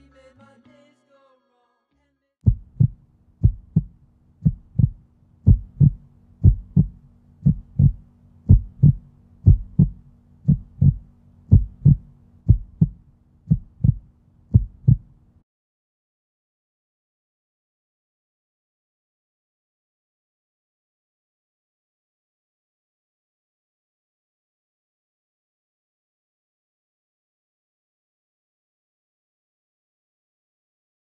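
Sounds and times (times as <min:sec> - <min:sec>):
heartbeat thumps: 0:02.4 - 0:15.2
faint low hum: 0:02.4 - 0:15.4.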